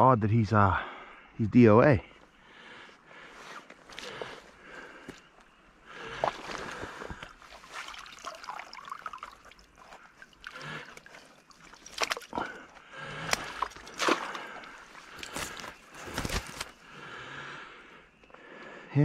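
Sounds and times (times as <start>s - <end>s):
water sloshing and splashing: 5.9s - 16.9s.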